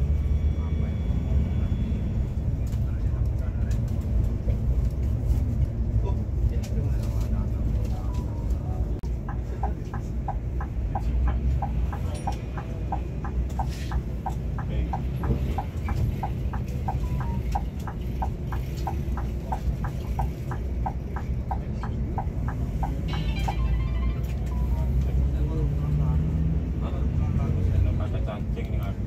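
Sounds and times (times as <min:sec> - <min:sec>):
engine and road rumble: 0:00.0 - 0:29.0
turn signal ticking: 0:06.4 - 0:26.7.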